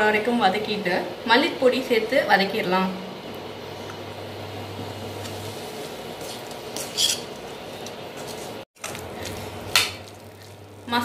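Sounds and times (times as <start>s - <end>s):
spatula scraping a metal pan: 6.8s - 7.3s.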